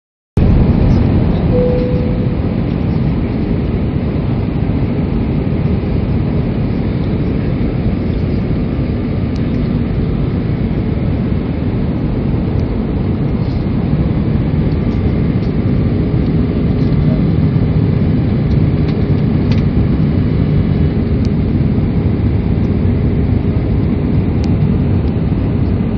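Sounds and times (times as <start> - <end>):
airliner cabin rumble: 0.4 - 25.9
brief steady tone: 1.4 - 3.0.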